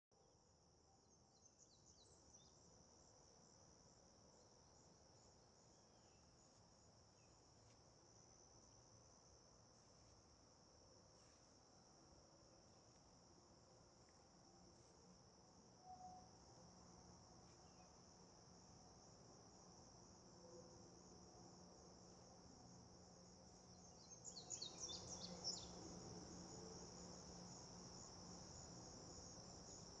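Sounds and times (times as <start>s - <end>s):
insects chorus: 1.3s - 30.0s
sharp insect chirps: 23.1s - 30.0s.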